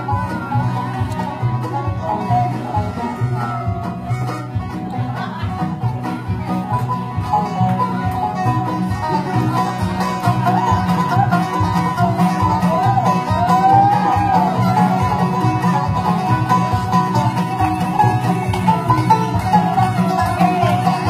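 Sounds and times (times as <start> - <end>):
banjo picking: 0.0 - 21.0
bass and guitar rhythm: 0.0 - 21.0.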